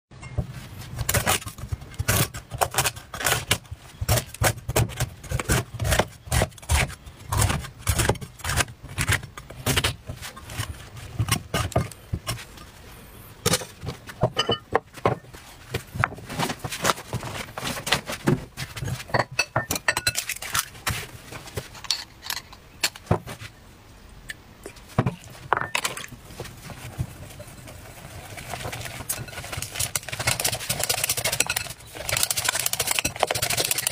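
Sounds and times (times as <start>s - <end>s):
utensil scraping glass bowl: 27.3s - 33.9s.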